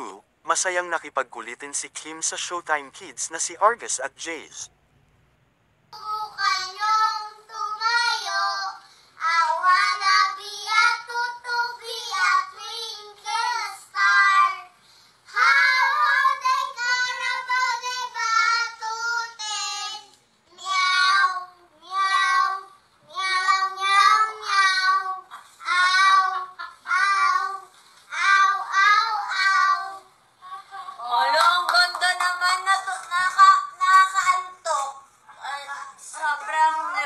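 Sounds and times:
children singing: 0:06.0 - 0:30.9.

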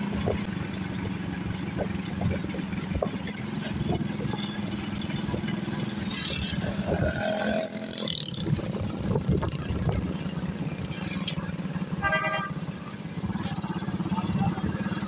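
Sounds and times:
vehicle engine running: 0:00.0 - 0:15.0
vehicle horn toot: 0:11.9 - 0:12.7.

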